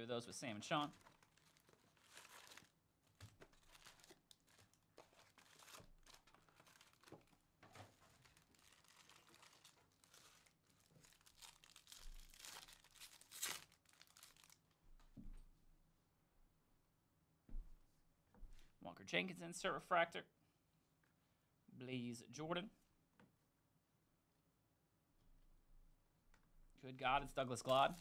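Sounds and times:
wrappers tearing and crinkling: 0:00.8 - 0:14.8, 0:27.6 - 0:28.0.

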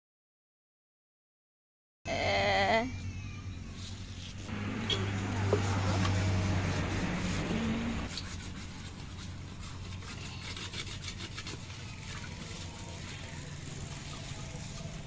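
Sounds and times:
hand scouring metal pot: 0:03.8 - 0:15.0.

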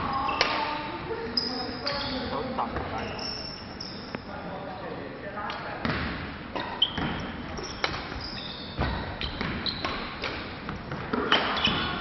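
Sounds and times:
shoes squeaking on wooden floor: 0:01.4 - 0:04.2, 0:06.5 - 0:12.0.

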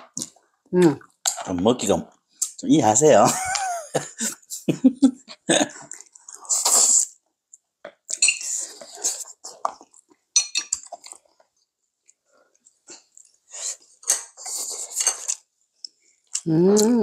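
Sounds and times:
close-up eating sounds: 0:00.0 - 0:02.7, 0:05.2 - 0:17.0.

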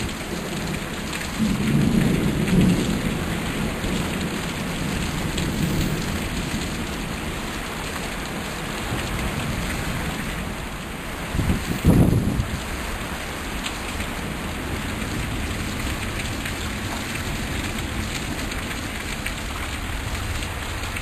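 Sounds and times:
heavy rain hiss: 0:00.0 - 0:21.0
low thunder rumble: 0:01.3 - 0:07.4, 0:11.3 - 0:12.8.

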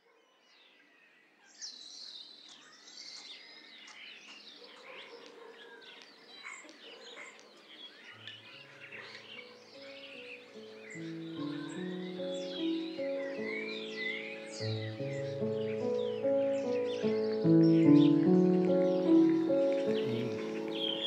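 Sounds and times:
birds chirping and singing: 0:01.5 - 0:21.0
soft music with low held notes: 0:08.3 - 0:21.0.

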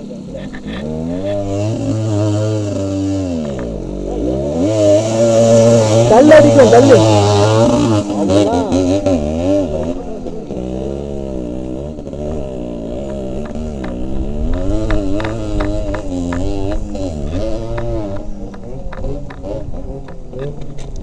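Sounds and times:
two-stroke motorcycle engine revving: 0:00.0 - 0:21.0
sharp ticks: 0:12.2 - 0:21.0.

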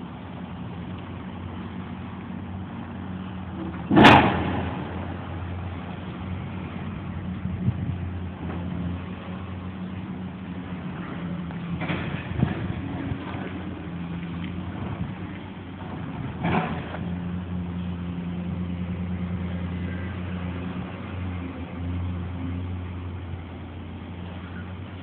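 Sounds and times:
engine running with low hum: 0:00.0 - 0:25.0
short clunk: 0:03.6 - 0:04.8.

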